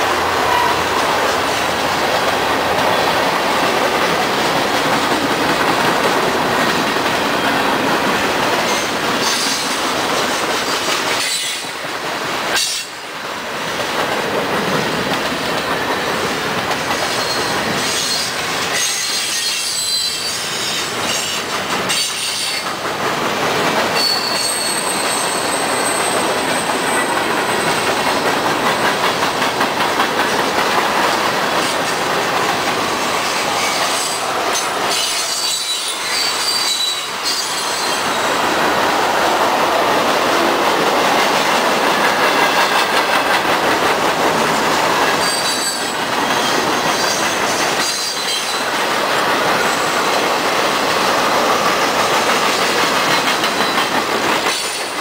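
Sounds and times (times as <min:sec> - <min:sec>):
freight train rumbling: 0:00.0 - 0:55.0
wheels clacking over rail joints: 0:00.0 - 0:55.0
wheel squeals: 0:16.9 - 0:22.6, 0:24.0 - 0:27.8, 0:34.9 - 0:38.2.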